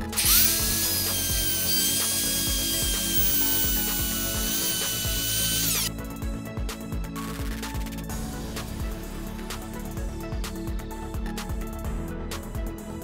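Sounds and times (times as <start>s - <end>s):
router whining cutting wood: 0.0s - 5.9s.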